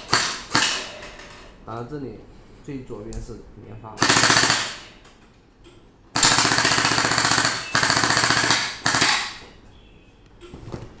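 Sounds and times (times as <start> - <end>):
gel blaster firing full auto: 4.0 - 4.8, 6.2 - 9.4.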